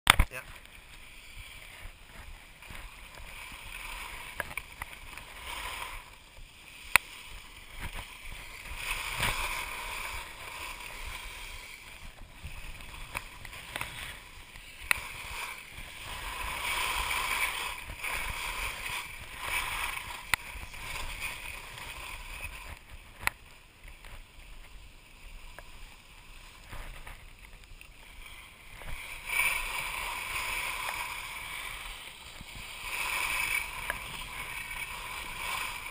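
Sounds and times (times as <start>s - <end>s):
skis swishing over snow: 0.3s - 35.9s.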